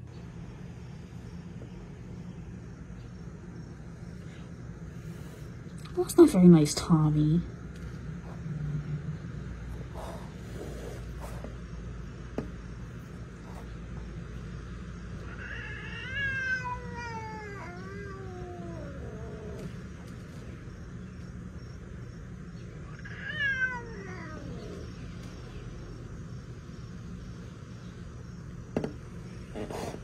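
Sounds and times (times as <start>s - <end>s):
cat yowling: 15.2s - 19.7s, 22.8s - 24.9s.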